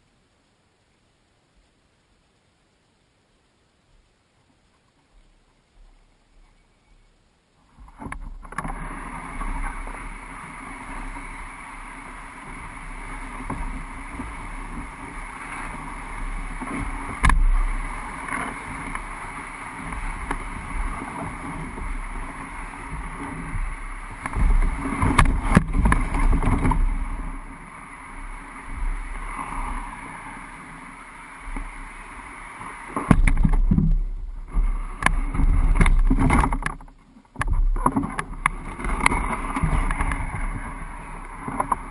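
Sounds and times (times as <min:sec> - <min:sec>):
canoe scraping over ground: 0:04.5 - 0:41.9
hull bumps and knocks: 0:22.8 - 0:27.2, 0:33.0 - 0:41.9.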